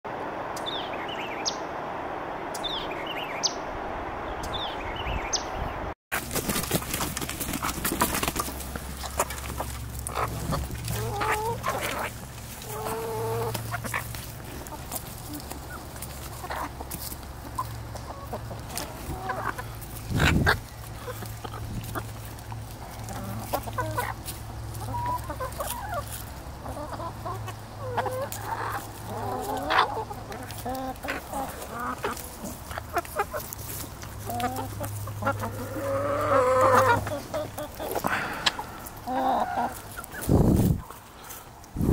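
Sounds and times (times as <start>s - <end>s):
high falling bird chirps: 0.4s - 5.9s
hens clucking: 6.1s - 41.9s.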